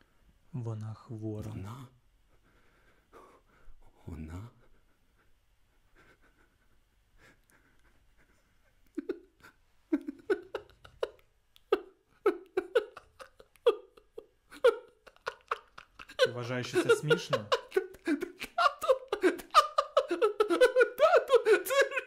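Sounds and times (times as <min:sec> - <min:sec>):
faint breathing: 0:02.3 - 0:04.0
man laughing spasmodically: 0:04.6 - 0:22.0.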